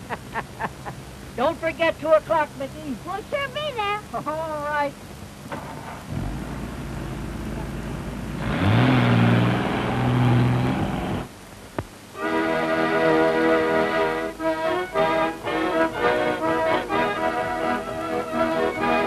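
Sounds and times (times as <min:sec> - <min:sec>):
car engine revving: 0:06.1 - 0:11.4
organ-like background music: 0:12.2 - 0:19.0.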